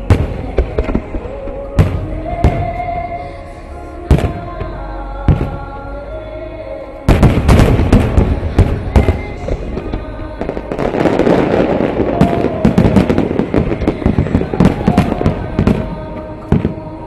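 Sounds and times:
fireworks crackling: 0.0s - 3.3s, 7.1s - 17.0s
fireworks bursting: 0.0s - 3.4s, 4.1s - 5.8s, 7.1s - 17.0s
music: 0.0s - 17.0s.

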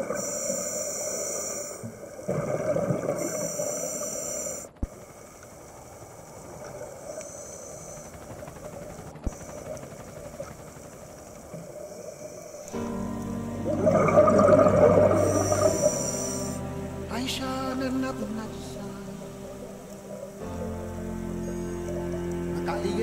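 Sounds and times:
soft inhale hiss: 0.0s - 13.8s, 14.8s - 22.6s
bubbly regulator exhalations: 13.6s - 16.6s.

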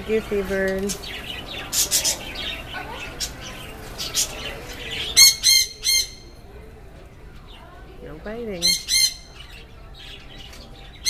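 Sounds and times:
parrot calling: 0.9s - 6.4s, 8.5s - 11.0s
shrill parrot squawks: 5.1s - 6.3s, 8.6s - 9.4s.

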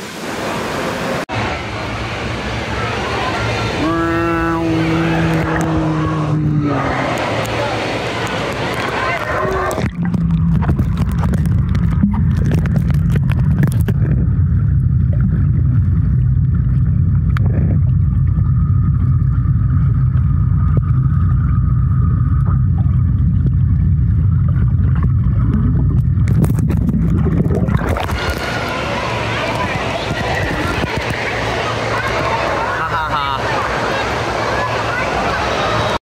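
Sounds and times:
muffled underwater rumble: 1.4s - 36.0s
water splashes and knocks: 8.2s - 14.3s, 24.4s - 28.8s.

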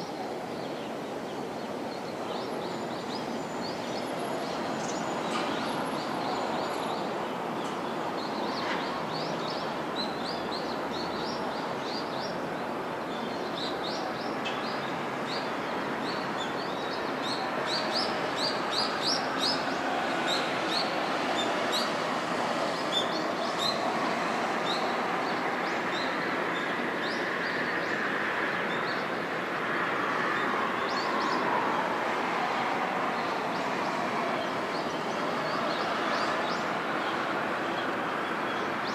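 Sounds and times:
distant jet engine noise: 17.2s - 38.9s.

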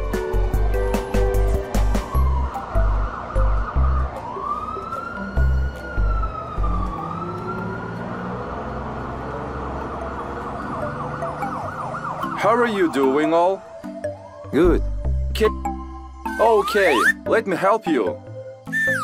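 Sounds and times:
police siren wailing: 1.7s - 14.8s, 16.2s - 17.2s, 18.7s - 19.0s.

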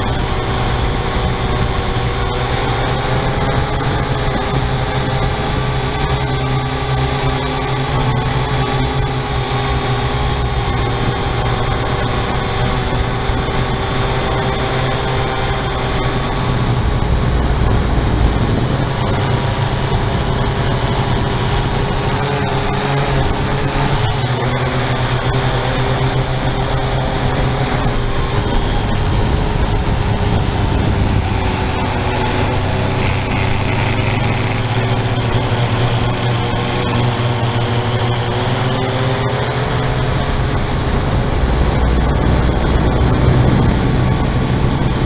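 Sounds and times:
drone propellers whirring: 0.0s - 45.0s.

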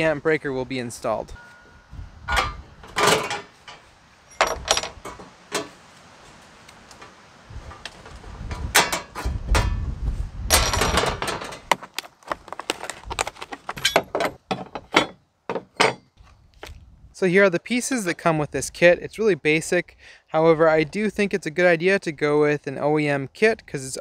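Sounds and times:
small metal parts clattering: 2.3s - 5.7s, 10.5s - 11.7s, 12.8s - 15.2s.

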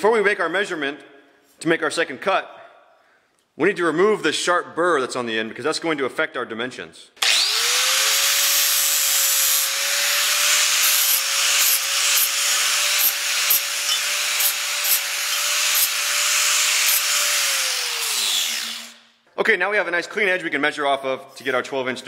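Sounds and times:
angle grinder whining: 7.2s - 19.1s
grinding disc scraping steel: 8.5s - 18.9s.

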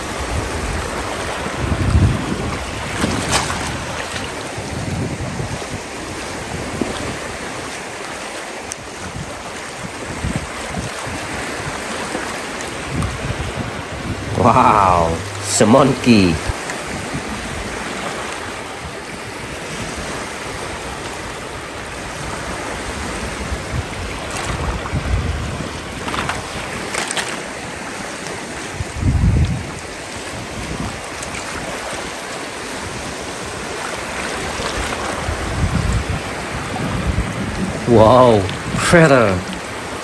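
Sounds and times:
small waves washing on beach: 0.0s - 40.0s
water splashes: 0.0s - 40.0s
low rumbles: 13.0s - 16.6s.

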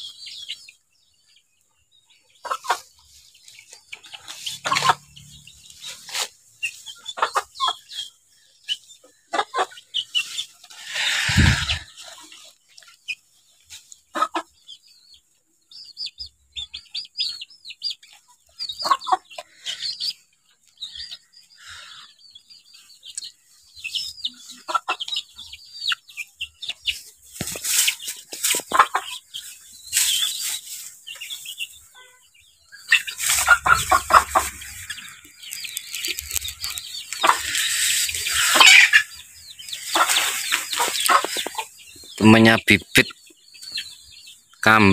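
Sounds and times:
chickens clucking: 0.0s - 44.9s
goats rustling dry palm leaves: 5.7s - 6.9s, 26.9s - 31.6s, 32.9s - 38.9s, 39.8s - 41.7s.

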